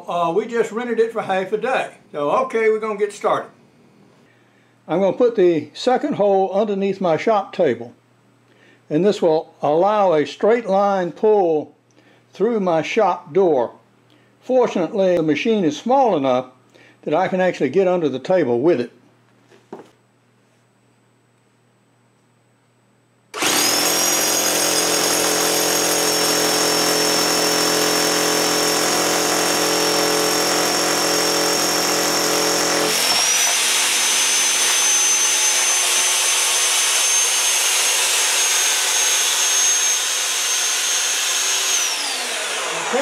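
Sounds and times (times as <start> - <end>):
concrete drill whining: 23.3 - 43.0.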